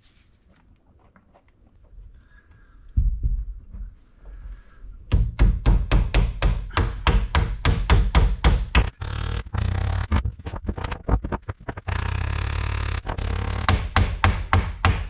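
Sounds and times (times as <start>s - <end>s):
hammer knocking on wood: 5.1s - 8.9s, 13.2s - 15.0s.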